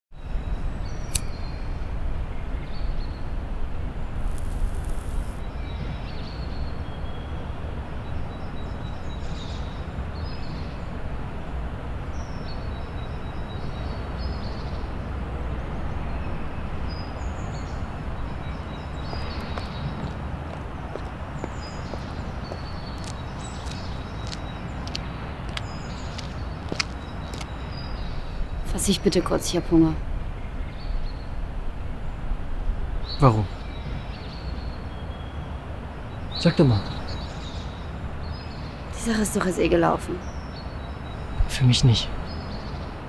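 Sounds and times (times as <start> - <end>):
distant traffic rumble: 0.2 - 43.0
small birds chirping: 16.0 - 31.4, 33.0 - 43.0.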